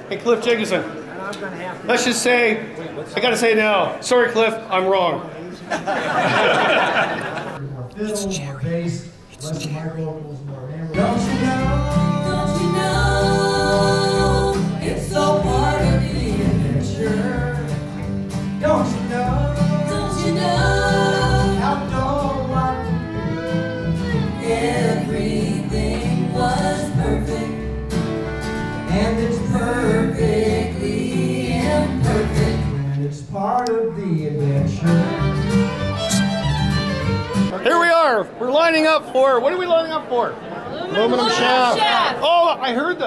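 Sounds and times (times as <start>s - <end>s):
guitar: 10.9s - 37.7s
person singing: 11.0s - 27.6s, 28.9s - 33.1s.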